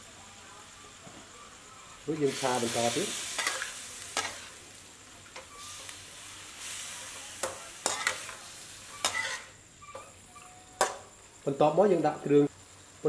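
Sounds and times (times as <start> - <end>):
meat sizzling in a wok: 0.0 - 10.2, 10.8 - 13.0
metal spatula clinking on pan: 7.4 - 8.4, 9.0 - 10.0.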